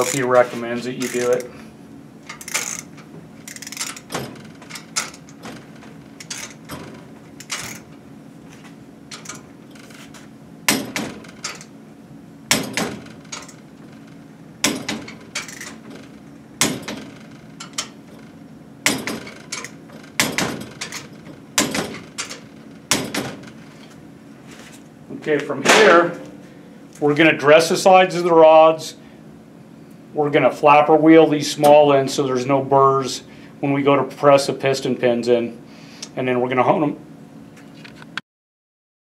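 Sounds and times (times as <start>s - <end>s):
wrench metallic clicks: 1.0s - 1.5s, 2.3s - 5.6s, 6.2s - 6.8s, 7.4s - 7.9s, 14.6s - 15.8s.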